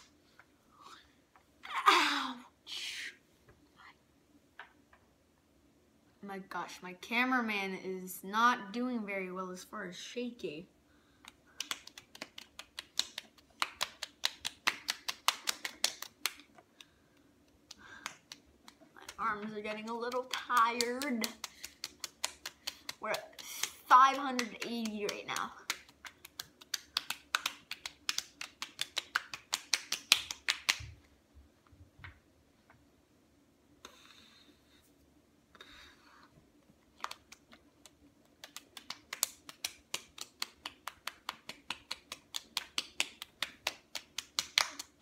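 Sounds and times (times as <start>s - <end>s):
palms slapping cheeks: 11.2s - 30.9s, 36.9s - 45.0s.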